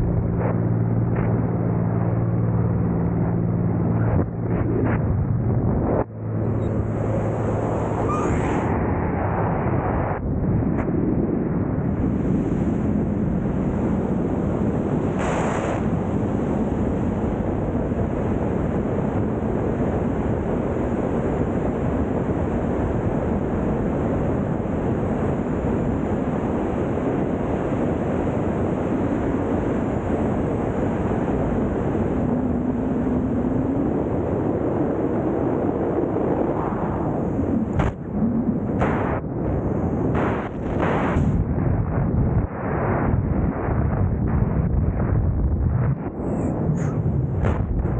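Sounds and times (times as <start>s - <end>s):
wind buffeting microphone: 0.0s - 47.9s.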